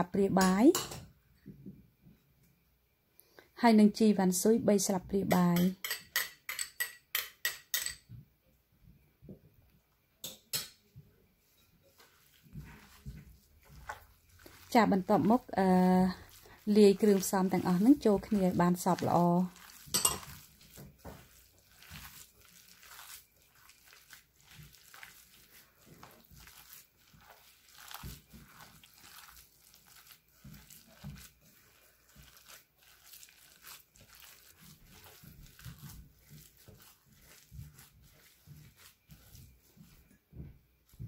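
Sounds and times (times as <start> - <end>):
hand squishing filling in bowl: 11.4 - 41.0.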